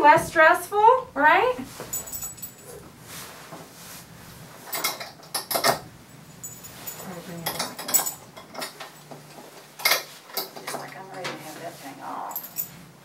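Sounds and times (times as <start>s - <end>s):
metal collar rings clinking: 1.7s - 2.8s, 4.7s - 10.9s, 12.0s - 12.9s.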